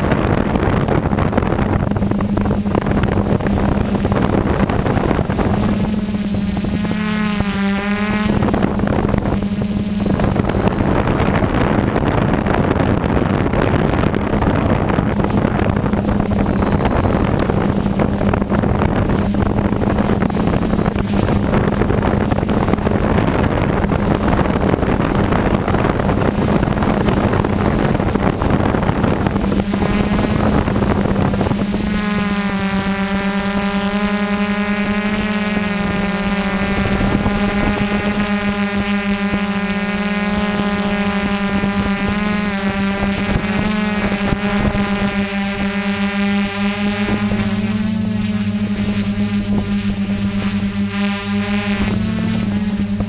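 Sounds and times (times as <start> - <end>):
drone propellers buzzing: 0.0 - 53.0
rush of air: 8.1 - 32.0.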